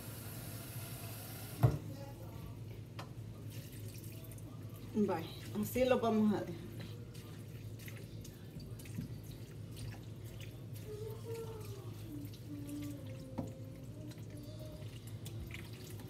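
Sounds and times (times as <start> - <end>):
faint dripping water: 6.7 - 16.0.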